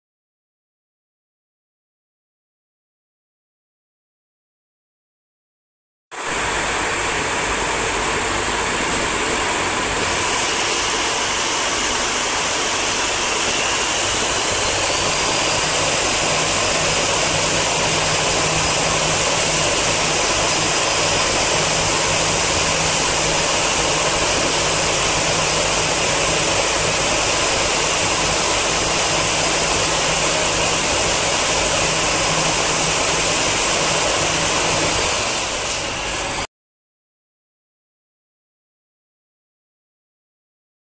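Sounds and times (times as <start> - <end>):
spark machines hissing: 7.7 - 36.4.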